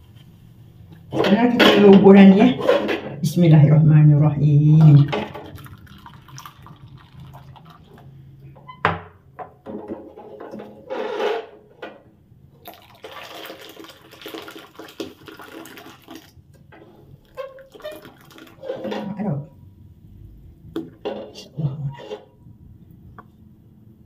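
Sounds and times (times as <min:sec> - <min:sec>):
thick liquid pouring: 0:04.8 - 0:08.4, 0:12.6 - 0:18.9.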